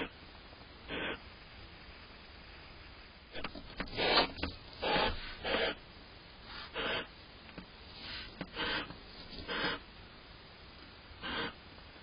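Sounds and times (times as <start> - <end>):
owls rasping hiss calls: 0.9 - 1.2, 3.4 - 5.8, 6.4 - 7.2, 8.0 - 9.9, 11.2 - 11.6.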